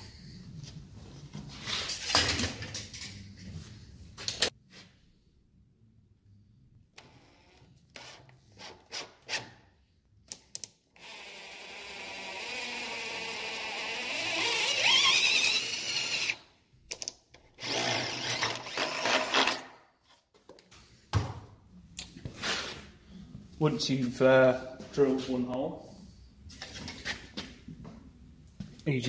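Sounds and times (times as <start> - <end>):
drill boring through wood: 11.0 - 16.4, 17.6 - 19.6.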